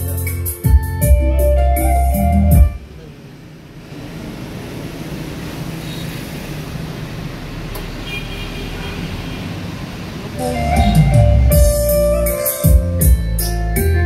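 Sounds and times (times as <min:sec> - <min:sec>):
bass-heavy music over pa: 0:00.0 - 0:02.9, 0:10.4 - 0:14.0
background hiss and rumble: 0:01.2 - 0:07.7.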